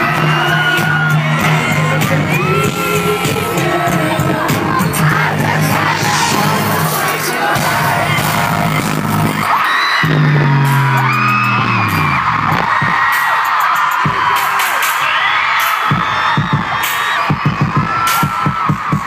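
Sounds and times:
fans screaming and whooping: 0:00.0 - 0:19.0
pop concert music: 0:00.0 - 0:19.0.

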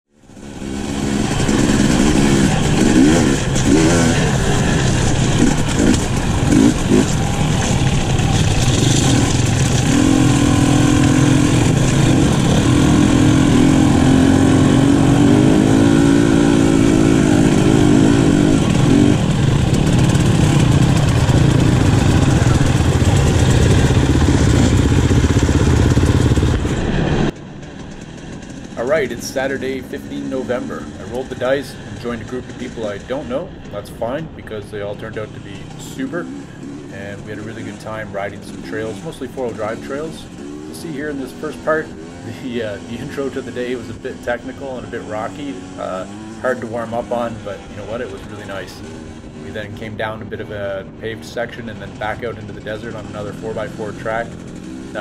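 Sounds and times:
dirt bike engines revving: 0:00.2 - 0:55.0.

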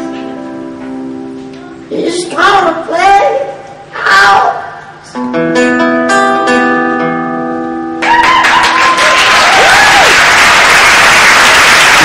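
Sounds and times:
acoustic guitar chord ringing: 0:05.2 - 0:08.0
audience applause and cheering: 0:08.0 - 0:12.0.

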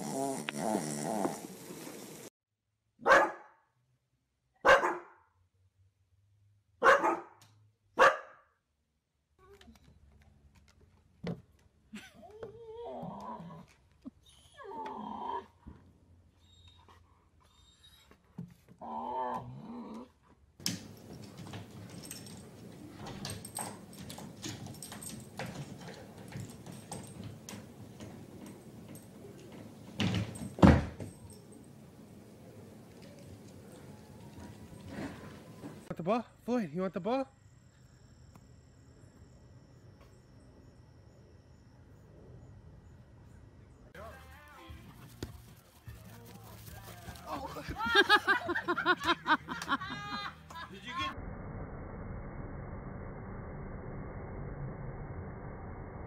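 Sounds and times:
dog barking: 0:03.0 - 0:03.6, 0:04.6 - 0:05.2, 0:06.8 - 0:07.4, 0:08.0 - 0:08.4.

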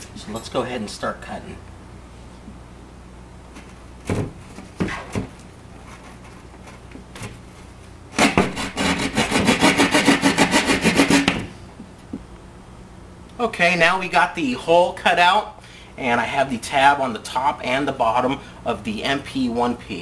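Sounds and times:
jab saw cutting drywall: 0:08.2 - 0:11.5.

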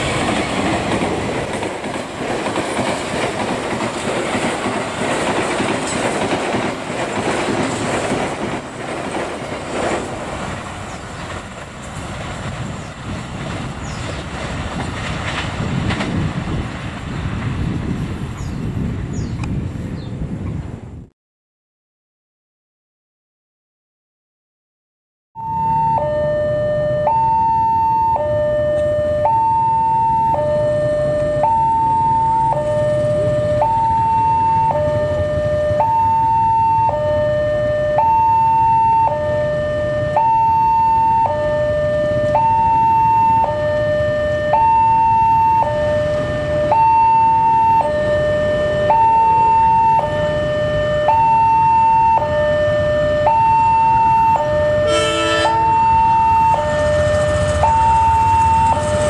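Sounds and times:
level-crossing two-tone alarm: 0:25.4 - 0:59.0
multi-tone horn blast: 0:54.4 - 0:57.8.

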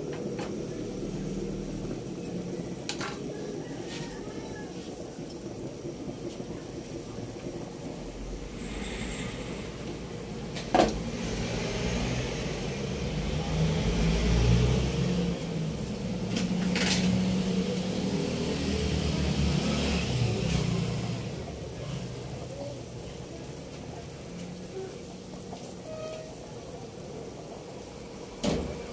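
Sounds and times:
broth bubbling at a boil: 0:00.0 - 0:28.9
low rumble: 0:06.8 - 0:13.3.

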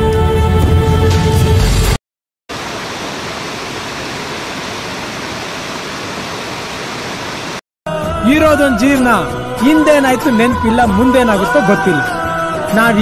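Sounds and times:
waterfall rushing water: 0:02.5 - 0:07.6.

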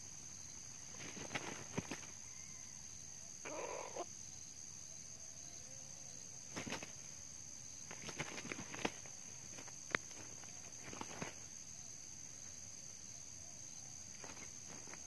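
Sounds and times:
roosters wing-flaps and scuffles: 0:00.0 - 0:02.4, 0:06.4 - 0:12.7, 0:14.1 - 0:15.0.

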